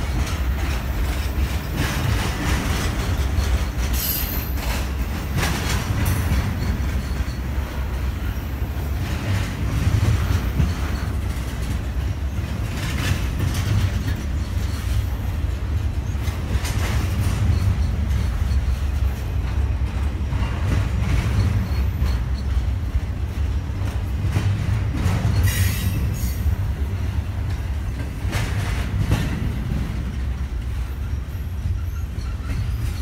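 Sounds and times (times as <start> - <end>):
freight train rumbling: 0.0 - 33.0
wheels clicking over rail joints: 0.0 - 33.0
high wheel squeal: 21.4 - 22.5, 31.0 - 33.0.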